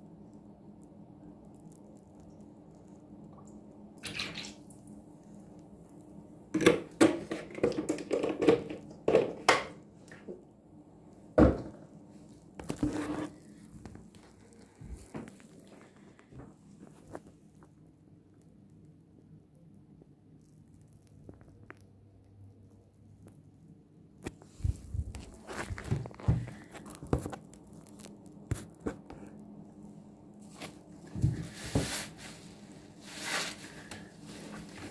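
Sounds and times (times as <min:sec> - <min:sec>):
water splashing into basin: 0:03.4 - 0:04.8.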